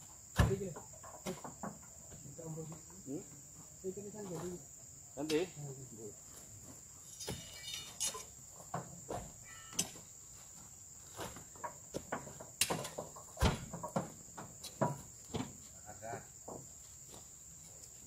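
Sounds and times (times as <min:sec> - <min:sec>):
high insect drone: 0:00.0 - 0:18.0
fruit bunches knocking and thudding: 0:00.3 - 0:03.2, 0:08.6 - 0:10.0, 0:11.1 - 0:15.6.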